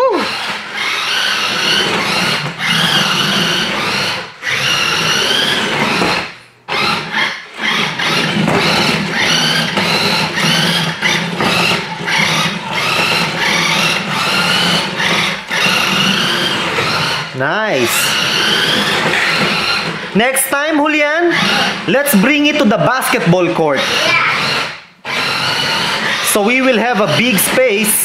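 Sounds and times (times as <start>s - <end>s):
rc car electric motor whining: 0.0s - 28.0s.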